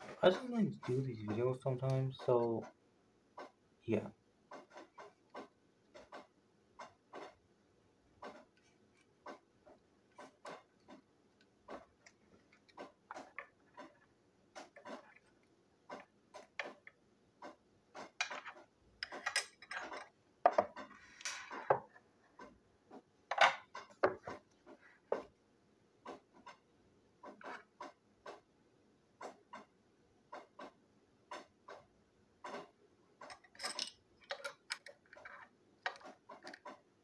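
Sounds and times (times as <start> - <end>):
parts clattering on table: 18.2 - 21.9, 23.3 - 24.4, 33.2 - 36.7.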